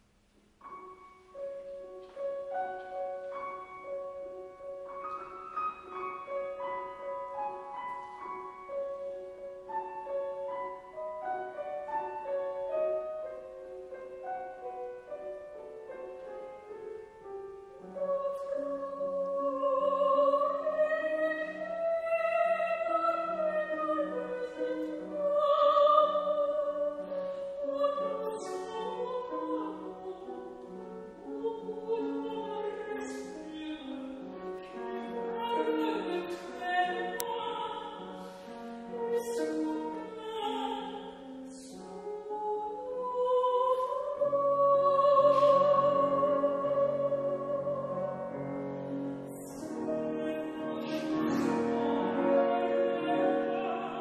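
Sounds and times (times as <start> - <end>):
piano accompaniment: 0.0 - 54.0
soprano singing operatically: 17.7 - 54.0.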